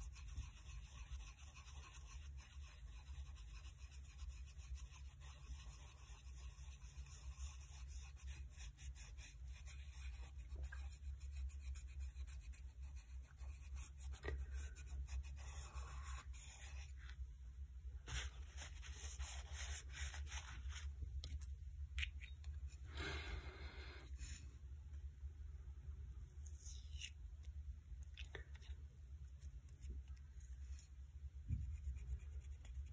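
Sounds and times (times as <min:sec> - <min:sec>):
steady low hum: 0:09.4 - 0:32.9.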